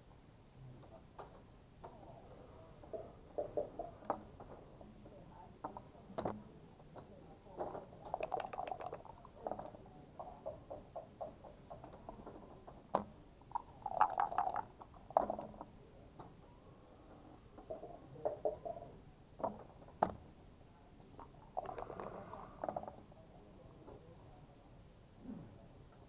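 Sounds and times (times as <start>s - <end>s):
dice rattling and rolling: 8.2s - 9.2s.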